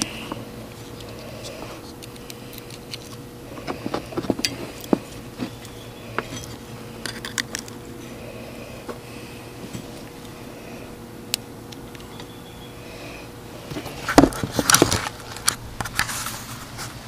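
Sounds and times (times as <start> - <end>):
wires and connectors clicking: 0.0 - 7.8, 11.3 - 12.3, 13.7 - 16.1
faint steady hum: 0.0 - 17.0.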